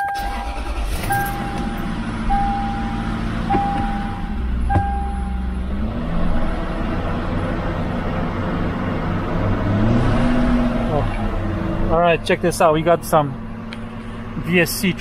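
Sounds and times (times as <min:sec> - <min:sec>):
car warning chime beeping: 0:00.0 - 0:05.6
engine running hum: 0:00.0 - 0:15.0.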